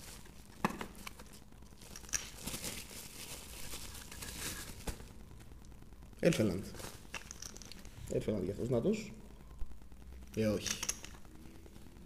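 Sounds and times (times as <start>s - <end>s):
bubble wrap crinkling: 0.0s - 9.2s.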